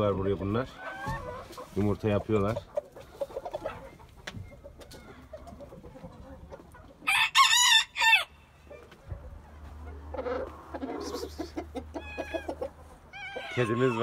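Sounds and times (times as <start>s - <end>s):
chickens clucking: 0.0s - 14.0s
rooster crowing: 7.0s - 8.4s.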